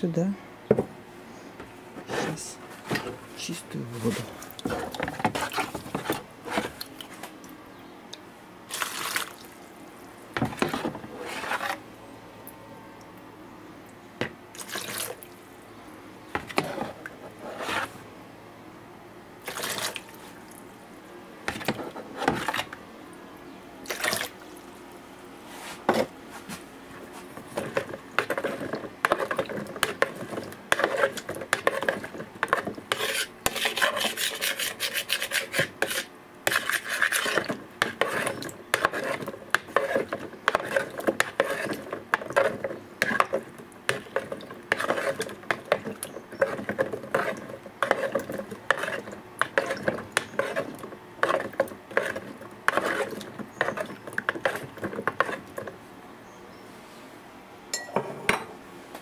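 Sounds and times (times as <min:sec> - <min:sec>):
garden soil being scraped: 0:10.6 - 0:11.8, 0:16.5 - 0:18.0, 0:25.5 - 0:55.5.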